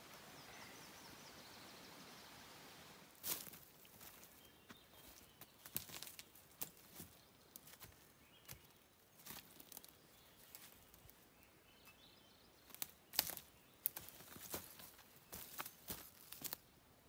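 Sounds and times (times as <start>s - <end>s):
forest litter crackling: 0.0s - 16.7s
footsteps on forest floor: 3.2s - 11.2s, 12.6s - 16.6s.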